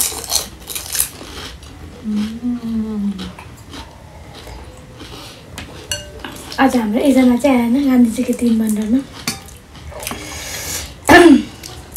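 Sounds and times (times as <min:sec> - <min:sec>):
mouth eating noises: 0:00.0 - 0:06.6
spoon clinking against bowl: 0:05.9 - 0:06.4, 0:09.3 - 0:09.6
woman's voice: 0:06.6 - 0:09.1.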